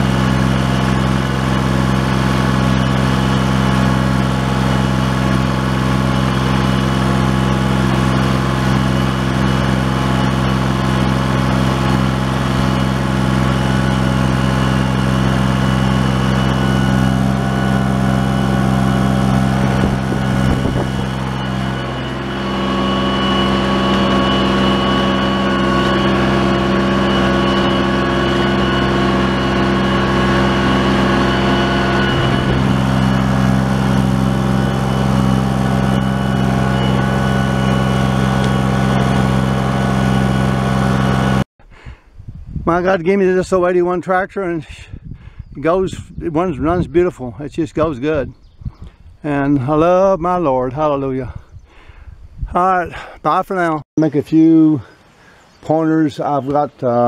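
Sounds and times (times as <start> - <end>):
tractor diesel engine under load: 0.0 - 41.9.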